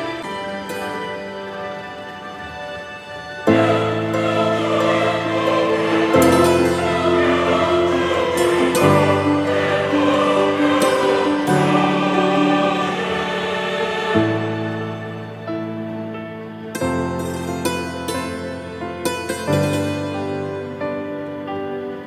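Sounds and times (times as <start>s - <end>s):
slow held music chords: 0.0s - 16.0s.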